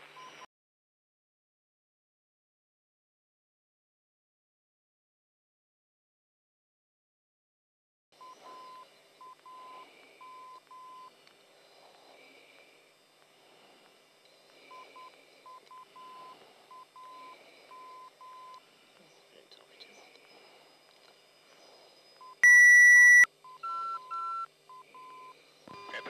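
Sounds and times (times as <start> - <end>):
morse code tone: 22.2 - 26.0.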